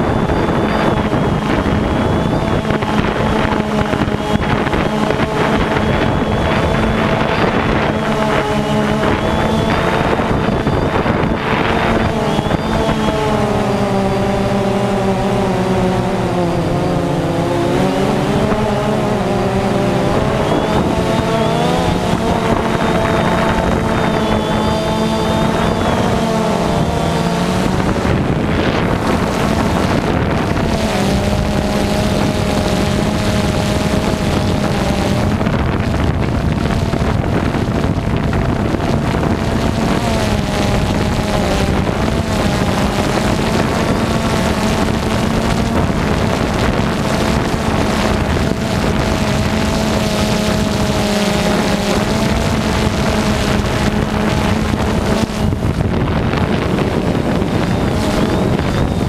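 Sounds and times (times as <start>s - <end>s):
drone motors droning: 0.0s - 59.0s
wind buffeting microphone: 0.0s - 59.0s.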